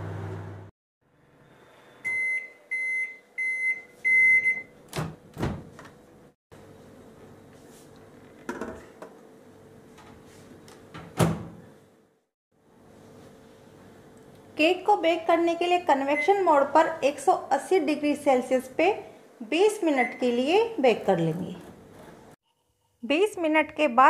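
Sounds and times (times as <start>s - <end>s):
microwave oven humming: 0.0s - 17.0s
door shutting with thump: 4.9s - 5.9s, 10.9s - 11.6s.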